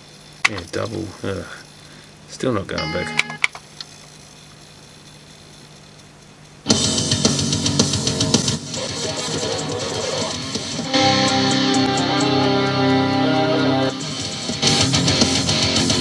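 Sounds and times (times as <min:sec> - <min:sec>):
cd player clicks: 0:00.4 - 0:00.8, 0:02.9 - 0:04.0
rock music with electric guitar: 0:06.7 - 0:16.0.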